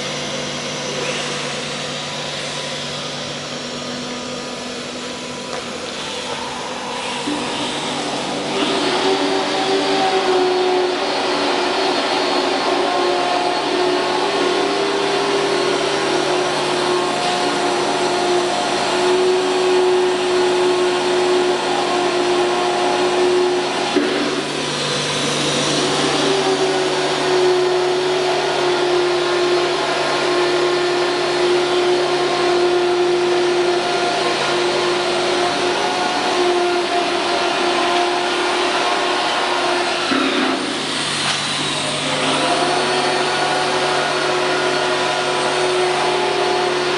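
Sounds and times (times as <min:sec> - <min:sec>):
machine motor hum and whine: 0:00.0 - 0:46.9.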